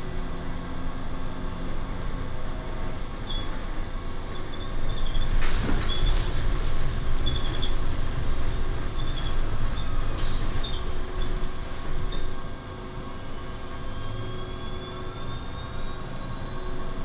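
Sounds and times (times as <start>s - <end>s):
road and tyre rumble: 0.0s - 17.0s
interior rattles and squeaks: 0.6s - 12.4s.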